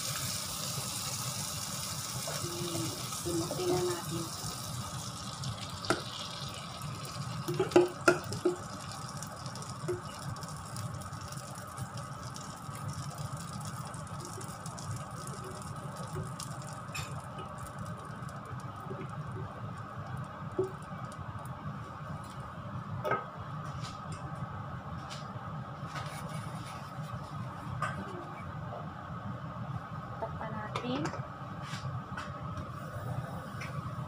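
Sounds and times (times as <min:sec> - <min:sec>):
batter sizzling in butter: 0:00.0 - 0:22.5.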